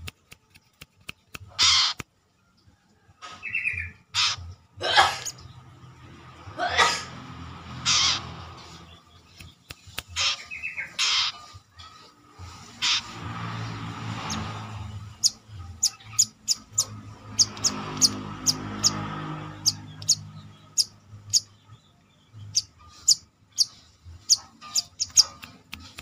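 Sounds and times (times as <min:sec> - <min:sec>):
sharp clicks: 0:00.0 - 0:02.1, 0:09.3 - 0:10.3, 0:24.7 - 0:26.0
bird harsh rasping calls: 0:01.4 - 0:02.1, 0:03.5 - 0:05.5, 0:07.1 - 0:21.6, 0:22.4 - 0:26.0.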